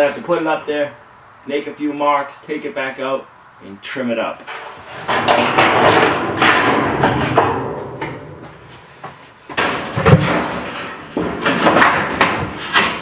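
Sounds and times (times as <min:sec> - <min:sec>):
metal panel rattling: 0:04.5 - 0:08.8, 0:09.5 - 0:13.0.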